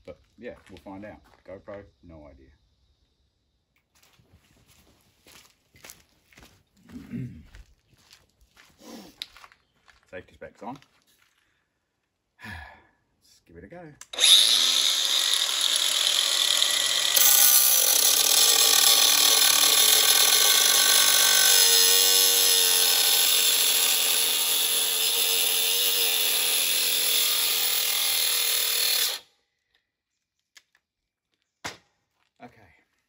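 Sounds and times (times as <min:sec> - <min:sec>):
angle grinder cutting metal: 0:14.1 - 0:29.3.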